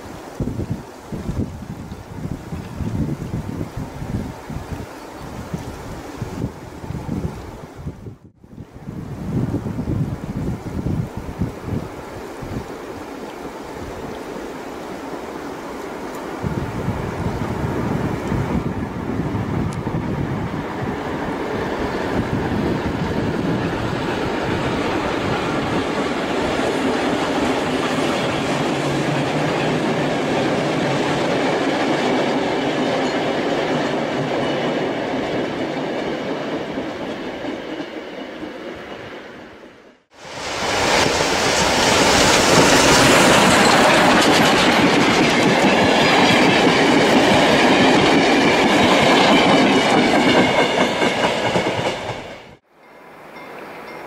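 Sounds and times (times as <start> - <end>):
train rolling across steel bridge: 0.0 - 54.0
carriage wheels on rails: 40.7 - 52.0.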